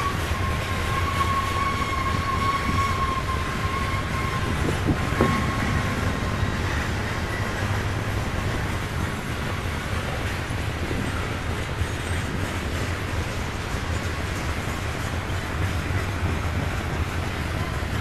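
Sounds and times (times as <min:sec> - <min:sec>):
high steady squeal: 0:00.0 - 0:08.8
train wheels rumbling on rail: 0:00.0 - 0:18.0.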